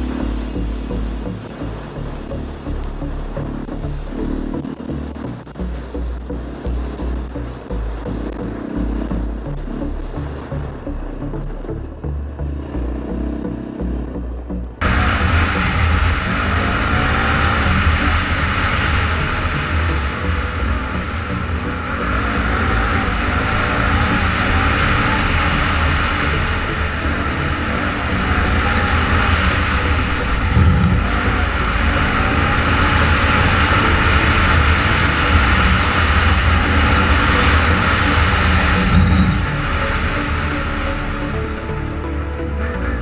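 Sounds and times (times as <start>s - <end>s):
quad engine revving: 0.0s - 5.5s, 6.5s - 42.1s
heavy continuous rumble: 0.0s - 43.0s
low thumps: 26.7s - 39.6s.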